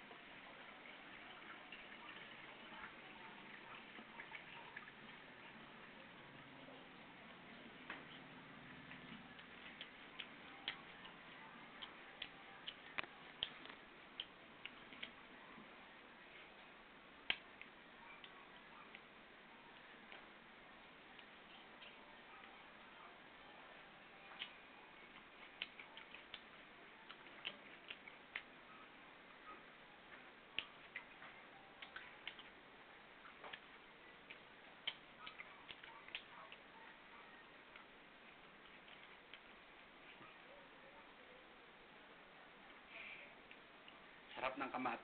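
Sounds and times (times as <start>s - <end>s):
mouth chewing wet clicks: 8.0s - 15.3s, 24.2s - 28.6s, 30.4s - 32.6s, 33.2s - 36.7s.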